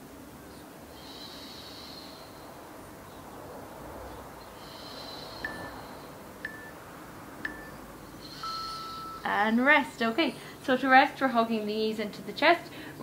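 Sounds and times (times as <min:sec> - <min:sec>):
person breathing: 0:00.9 - 0:02.8, 0:04.4 - 0:06.4, 0:08.0 - 0:09.2, 0:12.7 - 0:13.0
timer short beeps: 0:06.5 - 0:06.8, 0:07.4 - 0:09.3.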